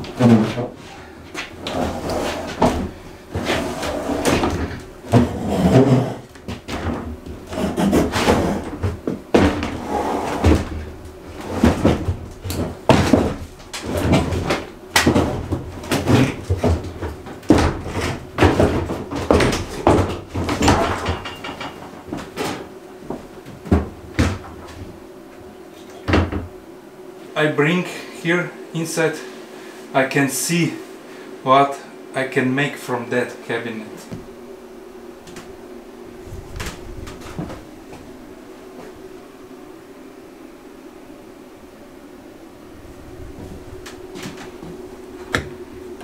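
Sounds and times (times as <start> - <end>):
wooden cabinet knocks and clunks: 11.6 - 22.5, 26.1 - 26.5.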